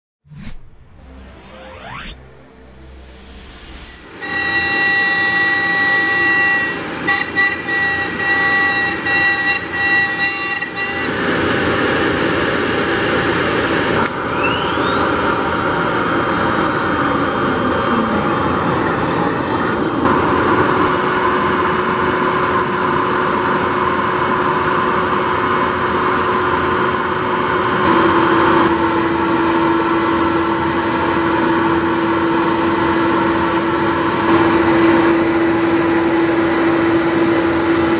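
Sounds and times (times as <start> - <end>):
steady hum: 0.3 - 4.6.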